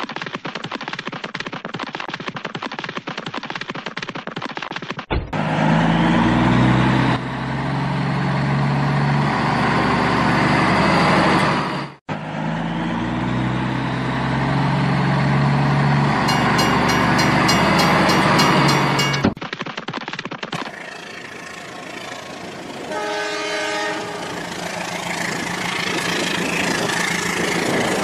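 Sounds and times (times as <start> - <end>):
diesel engine revving: 5.3 - 19.4
rapid high ticking: 16.3 - 20.2.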